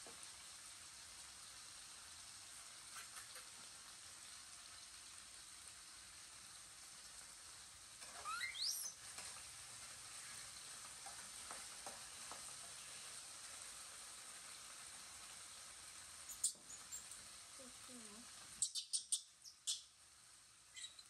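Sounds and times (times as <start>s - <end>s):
wok sizzling: 0.0s - 21.0s
baby monkey squealing: 8.2s - 9.0s.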